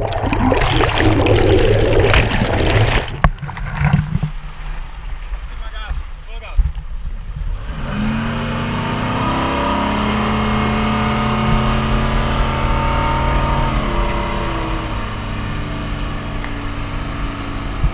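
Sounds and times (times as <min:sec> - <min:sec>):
outboard motor running: 0:08.4 - 0:17.9.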